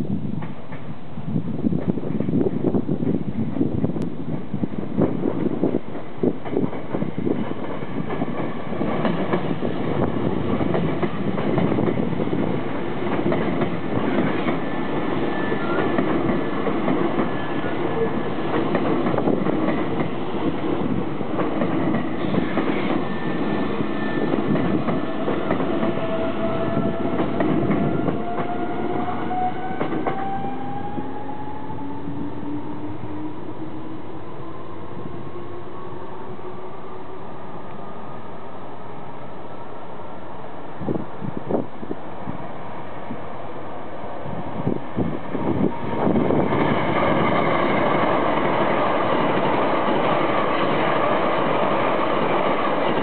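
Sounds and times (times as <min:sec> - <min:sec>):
train wheels clattering on rails: 0:01.7 - 0:31.6, 0:44.6 - 0:53.0.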